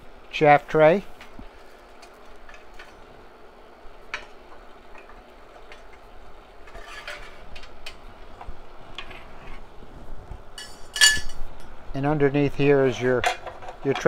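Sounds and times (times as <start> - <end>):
steady machine hiss: 0.0 - 14.0
metal tray clinking and scraping: 6.6 - 8.0, 10.6 - 11.4.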